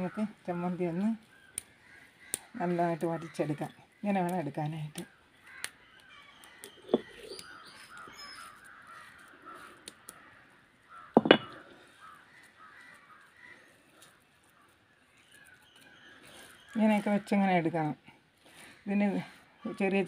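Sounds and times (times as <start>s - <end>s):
small birds chattering: 0.0s - 20.0s
crows cawing: 1.6s - 3.6s, 5.4s - 5.8s, 6.9s - 14.8s
stone knocking on stone: 11.2s - 11.7s.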